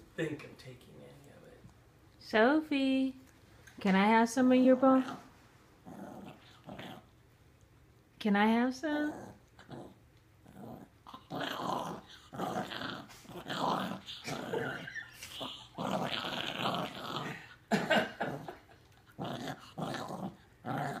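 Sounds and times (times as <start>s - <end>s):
puppy growling: 5.0s - 7.1s, 9.0s - 21.0s.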